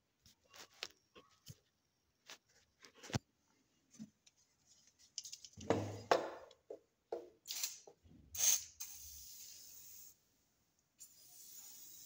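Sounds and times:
aerosol can spraying: 0:08.4 - 0:10.1.

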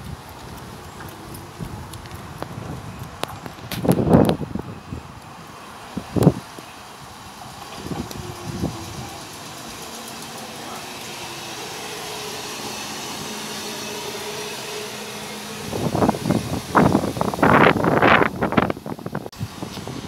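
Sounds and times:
electric train traction hum: 0:00.0 - 0:20.0
train carriages rushing and thumping: 0:05.7 - 0:20.0.

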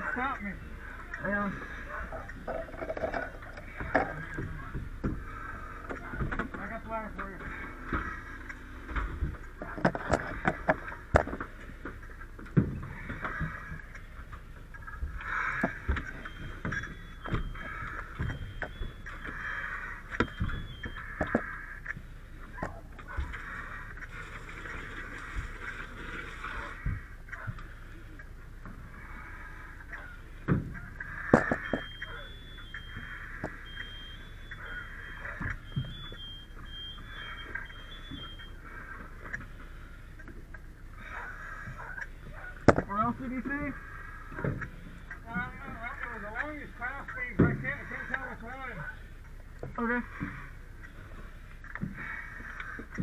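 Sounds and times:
murky rumble of activity: 0:00.0 - 0:53.0
smoke alarm beeping: 0:15.9 - 0:19.4, 0:20.1 - 0:21.1, 0:31.4 - 0:38.6.

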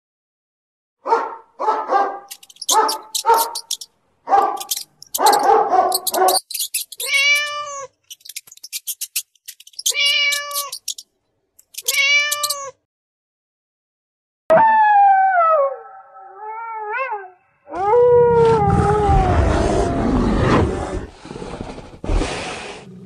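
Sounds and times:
fast clicking: 0:02.3 - 0:07.5, 0:08.1 - 0:11.0, 0:11.6 - 0:12.6
cat meowing: 0:06.2 - 0:07.9, 0:09.7 - 0:11.0, 0:11.8 - 0:12.8.

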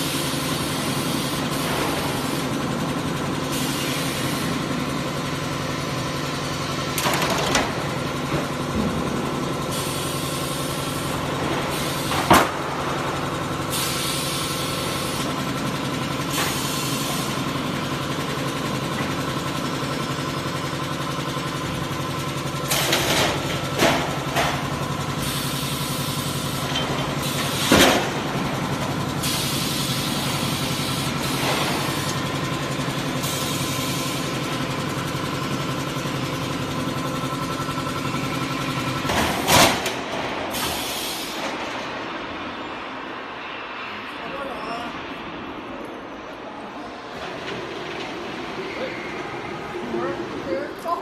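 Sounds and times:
machine hum: 0:00.0 - 0:51.0
machine clanks and bangs: 0:06.1 - 0:09.8, 0:11.1 - 0:13.7, 0:17.5 - 0:25.4, 0:26.5 - 0:29.4, 0:31.1 - 0:33.4, 0:34.4 - 0:42.6.

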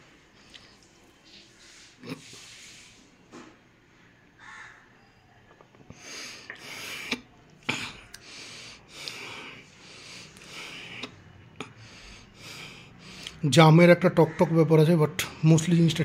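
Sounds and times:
mouth clicks: 0:05.5 - 0:08.3
man breathing heavily: 0:05.9 - 0:13.4.

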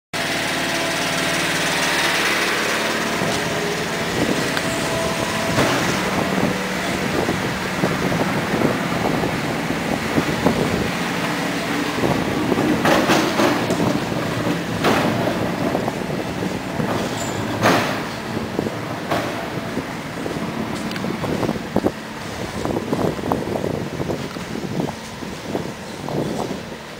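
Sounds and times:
loud rushing noise: 0:00.2 - 0:26.8
motor engine running: 0:00.2 - 0:26.9.

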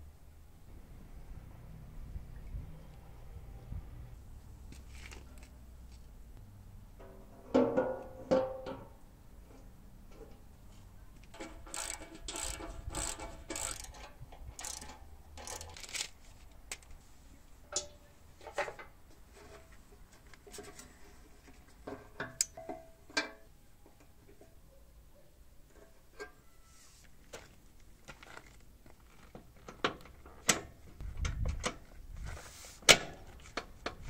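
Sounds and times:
metal parts and wrench rasping: 0:11.3 - 0:16.2.

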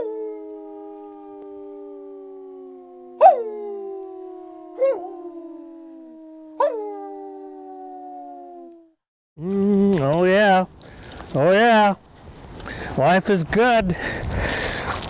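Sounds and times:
wild canines howling: 0:00.0 - 0:09.0.

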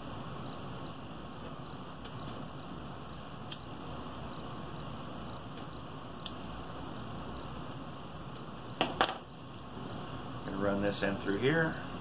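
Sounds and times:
workshop background hiss: 0:00.0 - 0:12.0
lighter clicks: 0:03.5 - 0:03.7.

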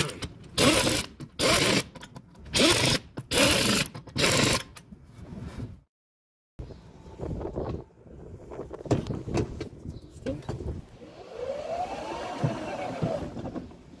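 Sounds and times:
electric motor whine: 0:11.0 - 0:13.5.

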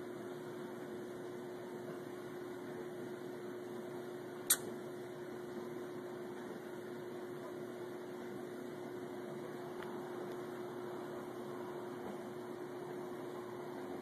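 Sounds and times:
steady low hum: 0:00.0 - 0:14.0
short sharp click: 0:04.5 - 0:04.7.

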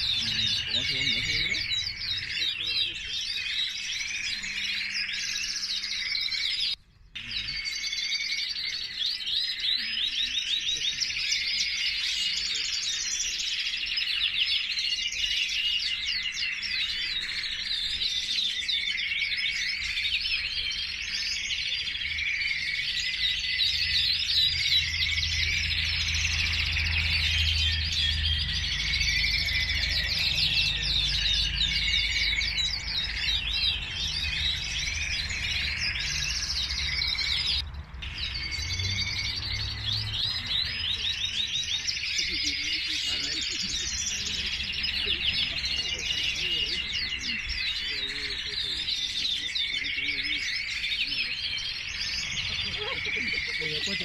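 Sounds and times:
canaries singing: 0:00.0 - 0:54.0.

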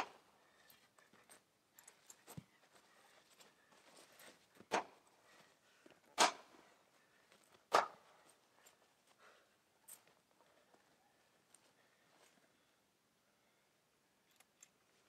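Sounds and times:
wooden pole swinging strokes: 0:06.0 - 0:06.6, 0:07.5 - 0:08.2.

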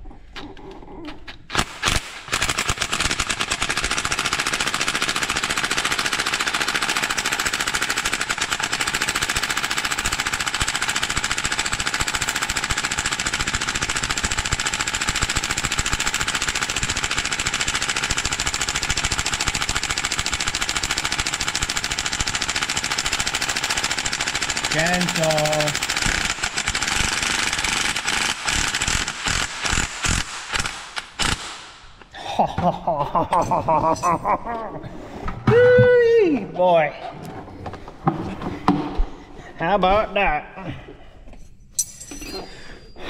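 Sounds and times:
impact wrench hammering: 0:41.8 - 0:42.8.

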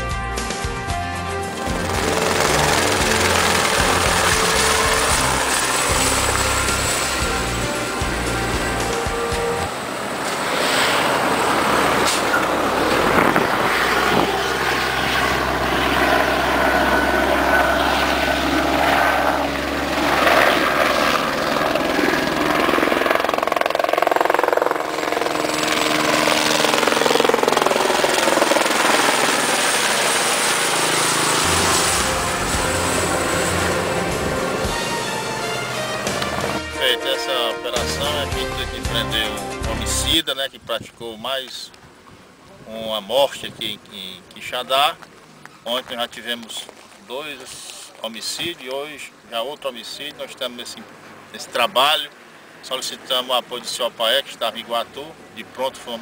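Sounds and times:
background music: 0:00.0 - 0:09.8, 0:31.3 - 0:40.2
helicopter rotor and engine: 0:01.2 - 0:37.2.

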